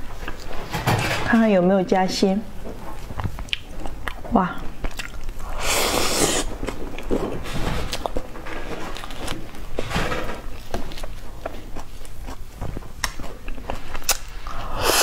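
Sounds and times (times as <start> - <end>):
wet mouth burst: 5.5 - 6.5, 14.5 - 15.0.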